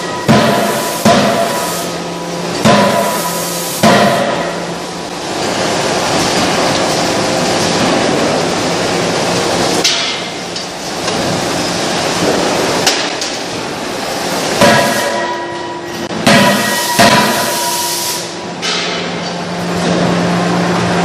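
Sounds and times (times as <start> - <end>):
rolling mill running: 0.0 - 21.0
forging hammer blows ringing: 14.6 - 17.9.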